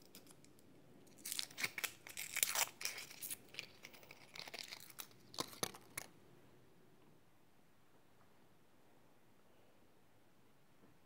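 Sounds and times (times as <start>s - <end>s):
crinkling and tearing by hands: 0.0s - 6.1s.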